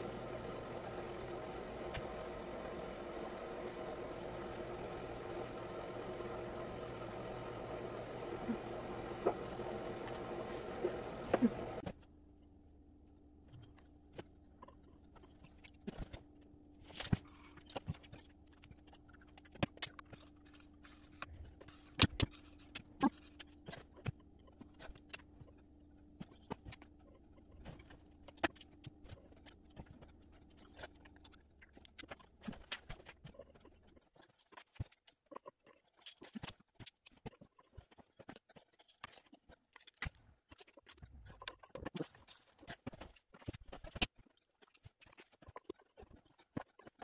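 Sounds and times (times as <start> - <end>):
loud steady noise: 0.0 - 11.8
faint steady hum: 0.0 - 31.7.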